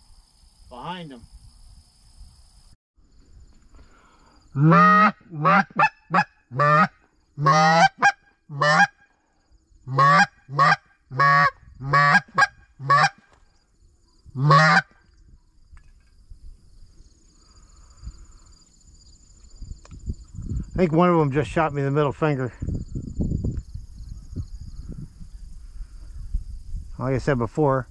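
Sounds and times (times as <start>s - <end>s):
goose call honks and clucks: 4.6s - 9.0s, 9.9s - 13.3s, 14.4s - 15.0s.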